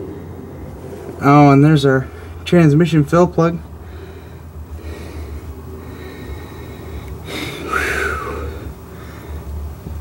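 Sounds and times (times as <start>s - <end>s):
low steady hum: 0.0s - 10.0s
person breathing: 3.8s - 9.6s.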